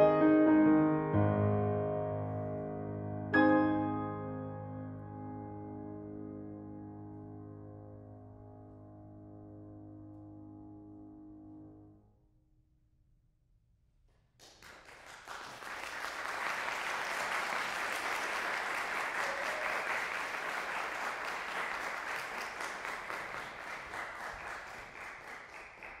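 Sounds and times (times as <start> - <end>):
audience applauding: 14.4 - 26.0.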